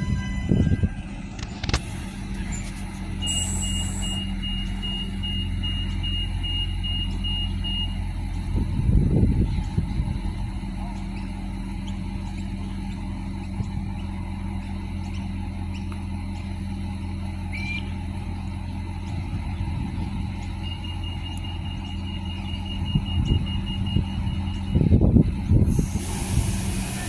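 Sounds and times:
diesel railcar idling: 0.0 - 27.0
short rising beep: 3.2 - 8.0.

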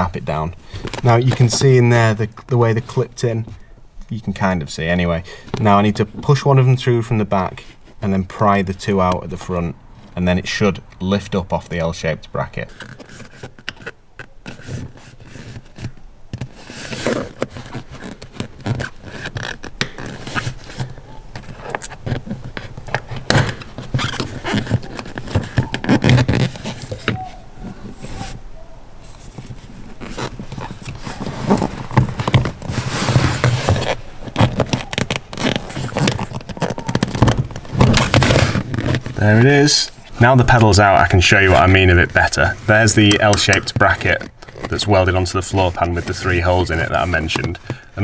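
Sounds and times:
screwdriver scraping plastic: 12.6 - 28.4, 29.1 - 39.6, 41.3 - 47.9.

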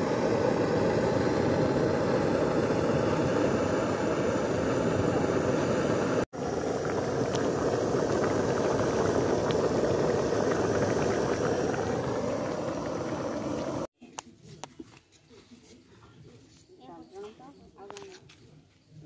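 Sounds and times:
curry boiling hard in a wok: 0.0 - 13.9.

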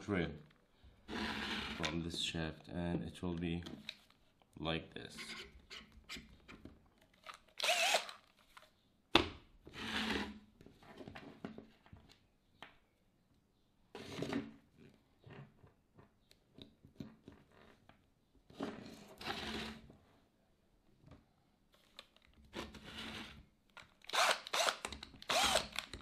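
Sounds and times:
cordless drill whirring: 7.6 - 8.2, 24.1 - 25.9.

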